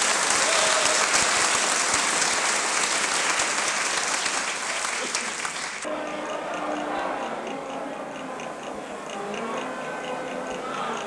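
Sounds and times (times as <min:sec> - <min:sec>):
crowd applauding: 0:00.0 - 0:05.9
music with ticking beat: 0:05.9 - 0:11.0.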